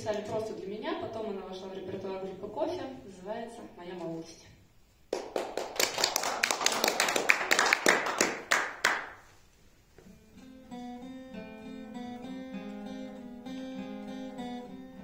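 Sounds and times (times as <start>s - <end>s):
audience applause: 5.1s - 9.2s
acoustic guitar picking: 10.0s - 15.0s.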